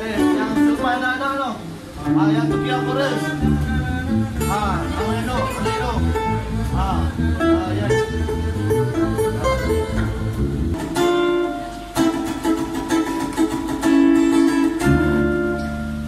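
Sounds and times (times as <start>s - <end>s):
acoustic guitars strumming: 0.0s - 16.0s
bass line: 1.7s - 16.0s
ukulele strumming: 1.8s - 16.0s.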